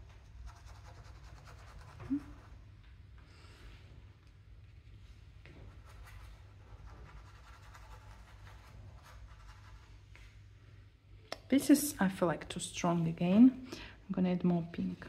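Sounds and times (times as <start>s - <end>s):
low steady hum: 0.0s - 15.0s
paintbrush scratching on canvas: 0.2s - 2.5s, 5.8s - 10.0s.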